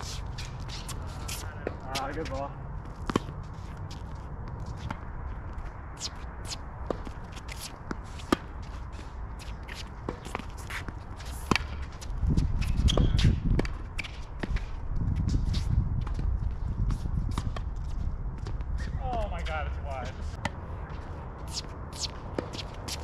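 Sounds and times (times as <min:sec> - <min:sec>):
tennis shoes squeaking: 0:00.0 - 0:05.0, 0:05.9 - 0:14.4, 0:20.9 - 0:23.0.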